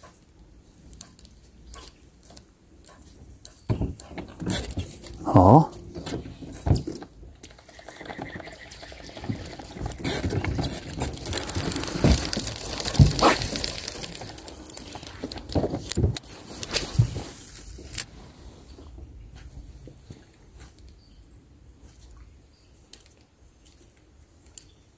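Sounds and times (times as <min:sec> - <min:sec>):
fishing reel and line rustling: 0:04.2 - 0:18.3.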